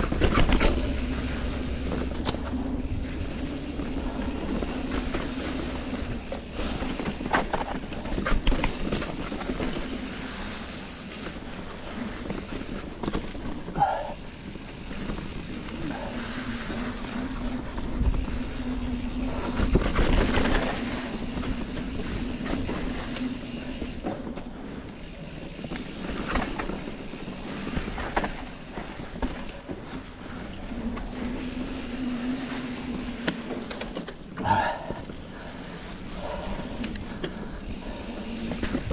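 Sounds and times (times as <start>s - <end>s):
bike rattling over bumps: 0.0s - 34.4s, 36.9s - 38.9s
bike tyres rolling on dirt: 0.0s - 36.4s, 37.0s - 38.9s
wind rumble on microphone: 12.0s - 28.2s.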